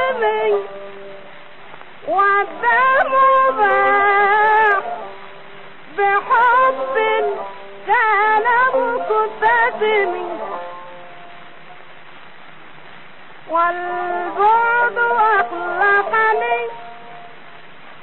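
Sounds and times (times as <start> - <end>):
woman singing: 0.0 - 0.9, 2.0 - 5.1, 5.9 - 10.7, 13.5 - 17.0.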